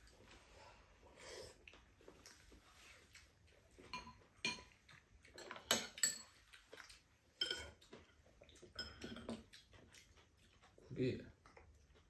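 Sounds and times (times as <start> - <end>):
utensils clinking against bowls: 5.4 - 6.4, 7.4 - 7.8.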